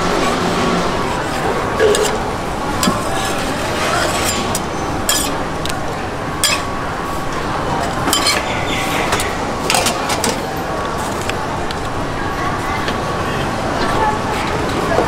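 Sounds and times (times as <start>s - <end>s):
steady background noise: 0.0s - 15.0s
metal tongs clinking on griddle: 2.8s - 5.4s, 6.4s - 6.7s, 8.1s - 8.4s.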